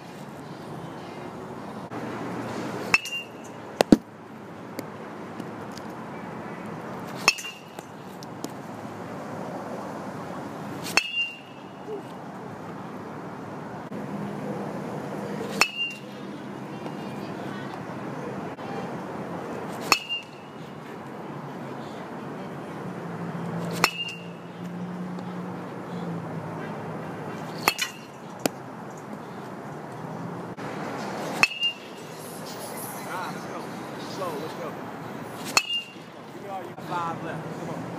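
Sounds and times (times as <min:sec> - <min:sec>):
metal bat hitting ball: 0:02.8 - 0:04.1, 0:07.2 - 0:08.6, 0:10.9 - 0:11.8, 0:15.6 - 0:16.0, 0:19.8 - 0:20.5, 0:23.7 - 0:24.4, 0:27.5 - 0:28.6, 0:31.3 - 0:32.0, 0:35.5 - 0:36.0.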